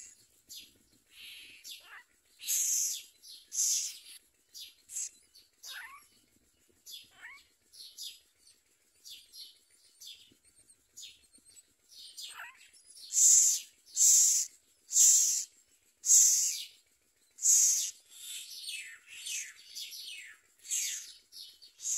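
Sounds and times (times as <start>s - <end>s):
nestlings raspy begging calls: 1.1s - 6.2s, 6.9s - 8.2s, 11.9s - 21.9s.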